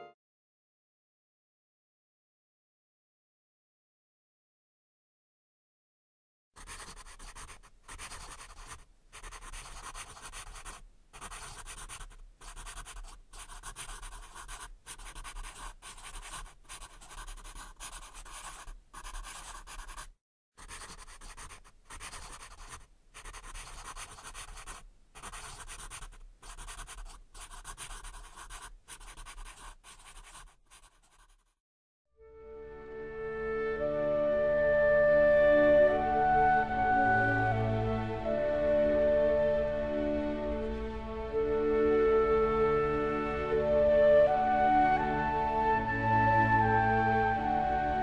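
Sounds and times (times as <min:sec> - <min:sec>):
pen scratching on paper: 0:06.6 - 0:31.6.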